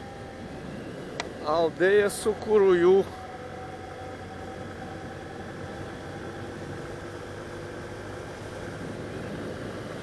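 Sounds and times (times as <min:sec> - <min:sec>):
motorcycle engine cruising: 0:00.0 - 0:10.0
wind and road noise: 0:00.0 - 0:10.0.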